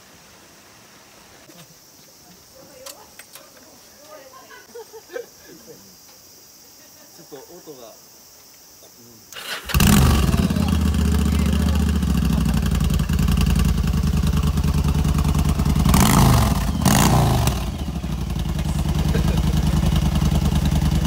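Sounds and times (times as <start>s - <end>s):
motorcycle engine idling and revving: 9.5s - 21.0s.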